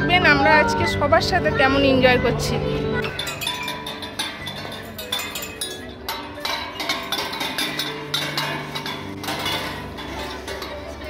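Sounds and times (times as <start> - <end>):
bright clinking percussion: 3.0 - 11.0.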